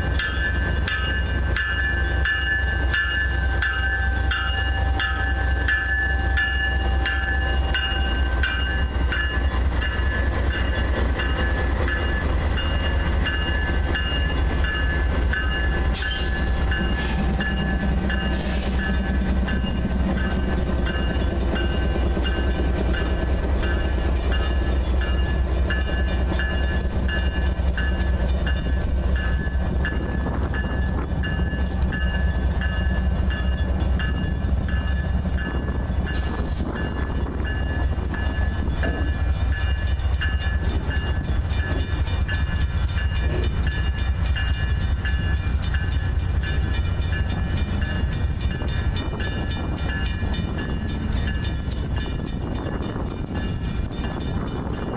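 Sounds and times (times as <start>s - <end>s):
crossing bell ringing: 0.0s - 54.9s
freight train wheels rumbling on rail: 0.0s - 54.9s.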